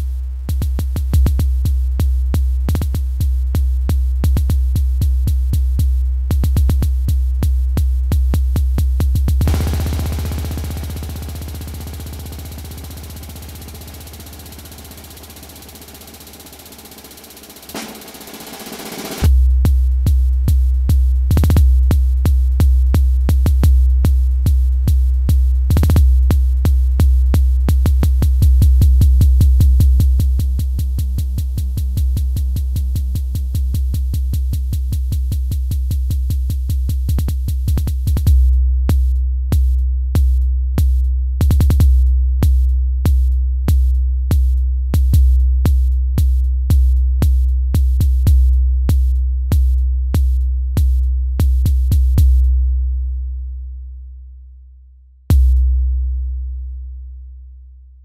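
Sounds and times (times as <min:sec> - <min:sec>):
deep bass drone: 0:00.0 - 0:17.8, 0:19.2 - 0:58.0
sharp repeating clicks: 0:09.4 - 0:19.3
steady held synth tones: 0:09.5 - 0:18.4.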